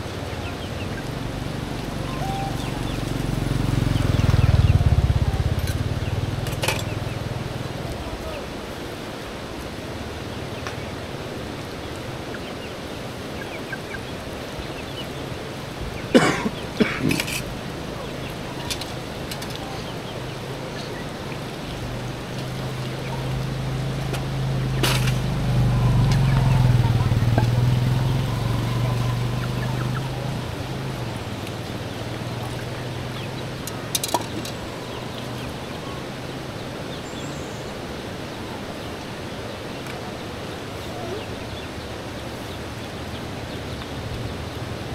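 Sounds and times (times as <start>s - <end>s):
steady outdoor hiss: 0.0s - 44.9s
vehicle engine hum: 0.0s - 44.9s
chickens clucking: 0.2s - 8.4s, 13.3s - 36.4s
chicken peeping: 13.4s - 15.2s, 25.7s - 33.5s.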